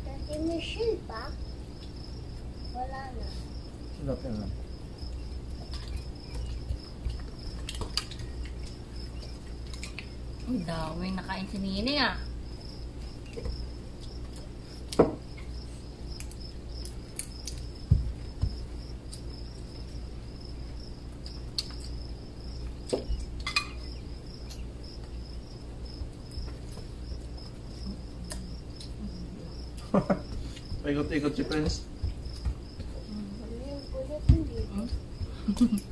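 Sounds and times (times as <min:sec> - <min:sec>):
crickets chirping: 0:00.0 - 0:35.9.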